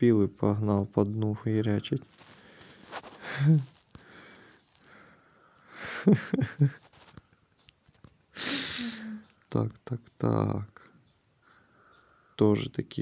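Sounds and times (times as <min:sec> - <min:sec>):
man breathing close to microphone: 0:02.2 - 0:06.0, 0:08.4 - 0:09.2.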